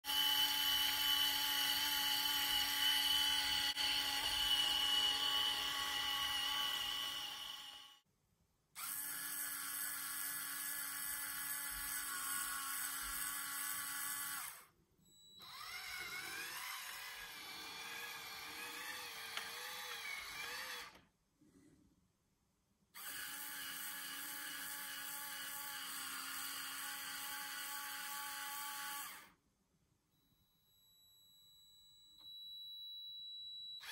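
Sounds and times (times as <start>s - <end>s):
small electric motor whining: 0.1s - 8.0s, 8.8s - 14.7s, 15.4s - 21.0s, 23.0s - 29.4s.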